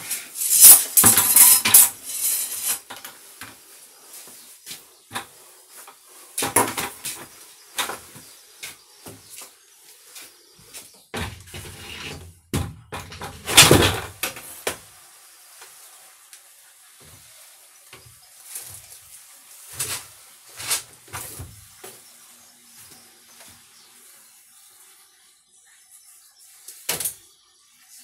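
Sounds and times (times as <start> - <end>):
plastic bucket scraping on wood: 11.2 - 12.3.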